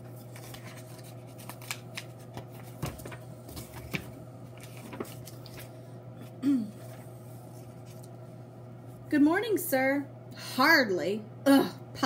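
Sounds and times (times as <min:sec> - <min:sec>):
book pages turning: 0:00.0 - 0:08.2
steady low hum: 0:00.0 - 0:12.0.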